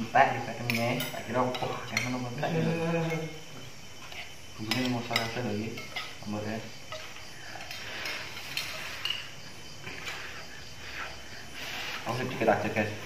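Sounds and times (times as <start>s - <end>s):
cutlery clinking on plates: 0.6s - 2.4s, 4.0s - 9.3s.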